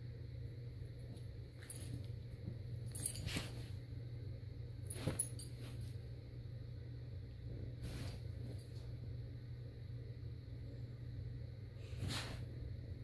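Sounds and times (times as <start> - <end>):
steady low hum: 0.0 - 13.0
rustling on blankets: 1.0 - 3.9, 4.8 - 6.2, 7.4 - 9.1.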